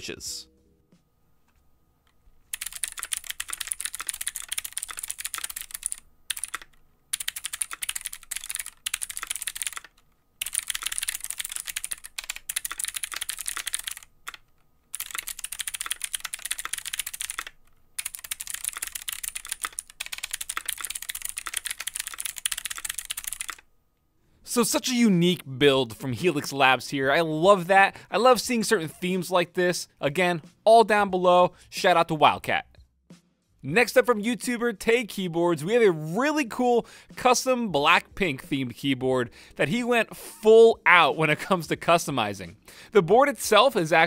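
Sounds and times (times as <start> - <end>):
mechanical keyboard typing: 2.5 - 23.6.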